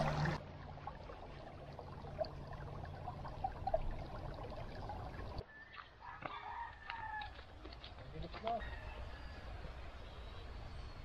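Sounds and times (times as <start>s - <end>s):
stream water gurgling: 0.0s - 8.4s
rooster crowing: 5.5s - 7.5s, 8.6s - 10.1s.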